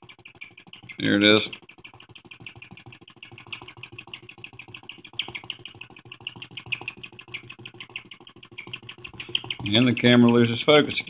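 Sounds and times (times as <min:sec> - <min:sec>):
small engine fast ticking: 0:00.0 - 0:11.0.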